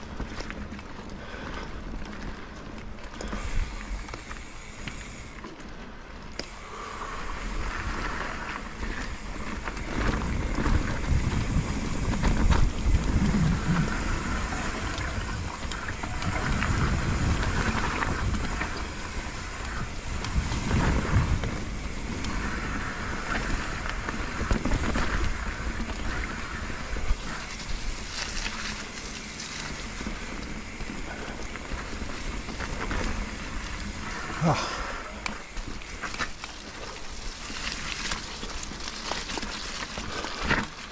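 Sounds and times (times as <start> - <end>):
tyres rumbling on rough ground: 0.0 - 40.9
wind noise on microphone: 7.2 - 34.6.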